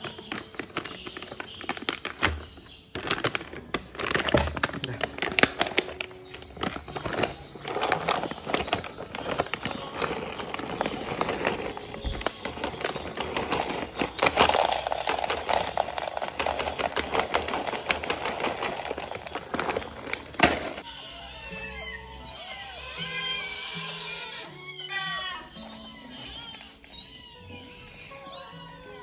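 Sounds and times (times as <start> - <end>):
bag crinkling: 0.0 - 20.8
kibble rattling into plastic bowl: 0.0 - 20.8.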